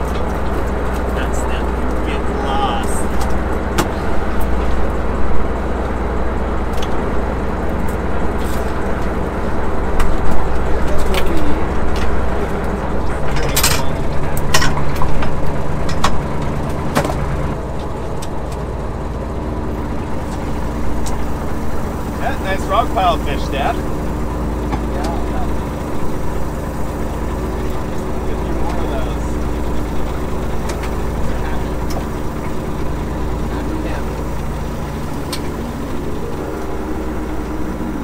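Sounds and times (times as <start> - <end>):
boat engine running: 0.0 - 38.0
higher hum: 0.0 - 38.0
sharp knocks and clanks: 13.0 - 18.6.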